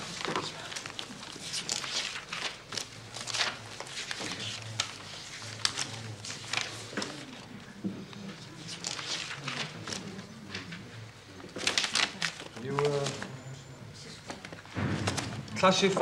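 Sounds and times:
paper rustling and page flips: 0.0 - 7.5, 8.1 - 13.4.

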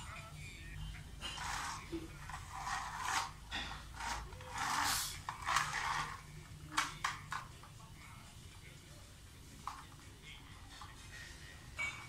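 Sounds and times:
toy truck scraping on tile: 1.2 - 7.4.

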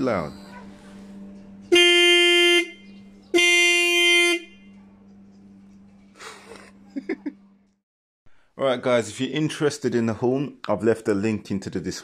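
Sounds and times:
horn blasts: 1.6 - 4.8.

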